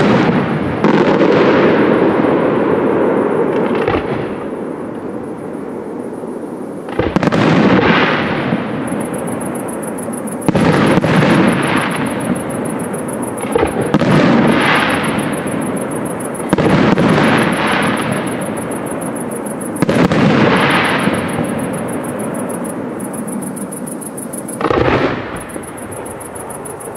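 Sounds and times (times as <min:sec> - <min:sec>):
crackle and rumble of fireworks: 0:00.0 - 0:26.9
firework shells bursting: 0:09.0 - 0:23.8.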